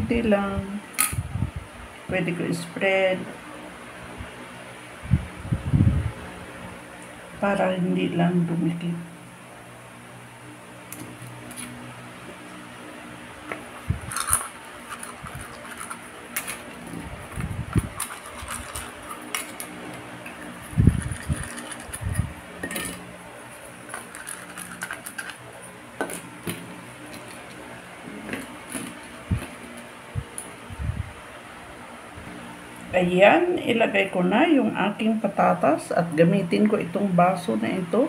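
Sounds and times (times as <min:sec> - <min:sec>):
metal tart tins clinking: 0:22.6 - 0:23.0.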